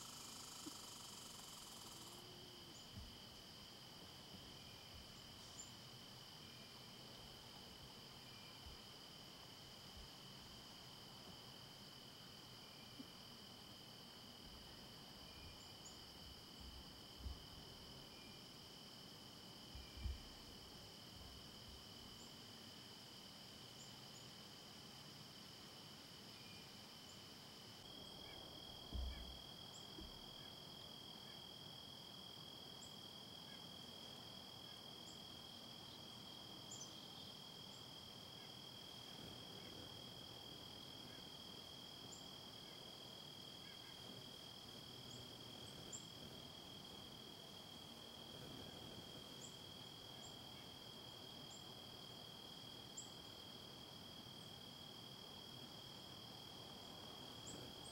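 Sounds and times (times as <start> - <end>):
faint insect chorus: 0.0 - 57.9
dull low thump: 28.9 - 29.4.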